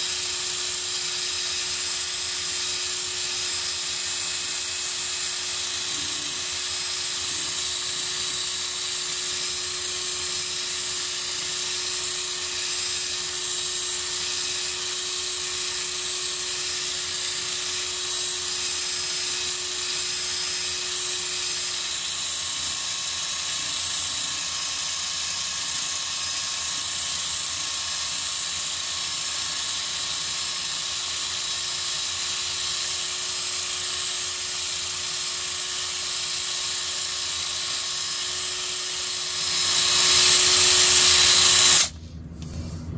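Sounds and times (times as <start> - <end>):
drill motor whine: 0.0 - 42.0
buffing pad hiss: 1.0 - 32.9, 36.0 - 42.0.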